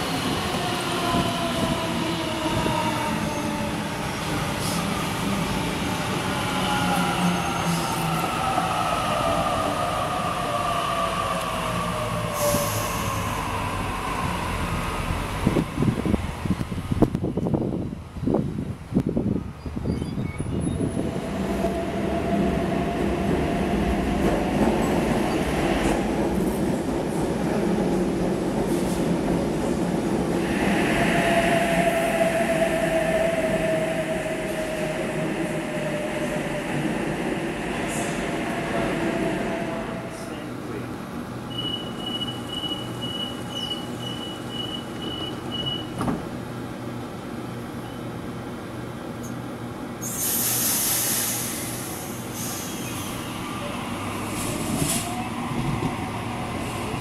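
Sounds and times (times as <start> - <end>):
electric train rumbling past: 0.0 - 19.8, 20.4 - 47.8, 49.6 - 57.0
train whine: 20.6 - 46.1, 50.1 - 57.0
train doors shutting knock: 45.0 - 46.3.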